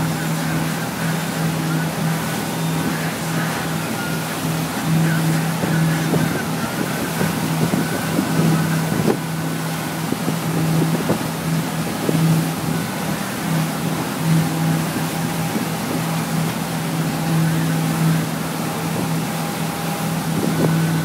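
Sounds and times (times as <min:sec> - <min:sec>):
boat engine humming: 0:00.0 - 0:21.0
churning wake water: 0:00.0 - 0:21.0.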